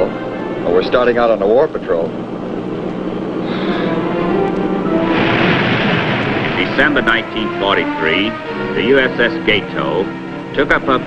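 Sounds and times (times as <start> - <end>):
rush of noise: 3.1 - 9.2
held tones music: 6.2 - 11.0.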